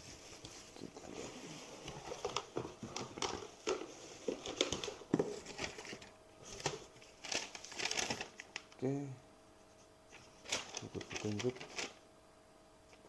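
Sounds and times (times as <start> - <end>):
paper sheets rustling: 0.0 - 8.7, 10.1 - 12.0
plastic packaging crinkling: 1.9 - 8.8, 10.4 - 12.0.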